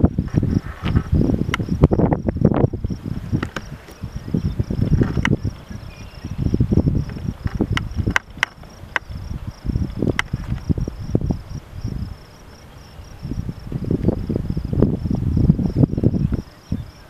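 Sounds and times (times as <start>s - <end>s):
insects trilling: 0.0s - 17.0s
wind buffeting microphone: 0.0s - 17.0s
sharp clicks: 7.1s - 9.1s.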